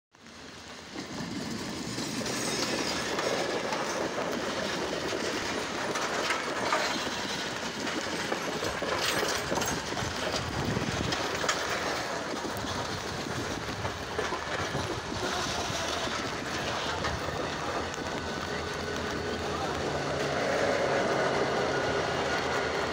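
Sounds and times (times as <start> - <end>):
train wheels clattering on rails: 0.2 - 22.9.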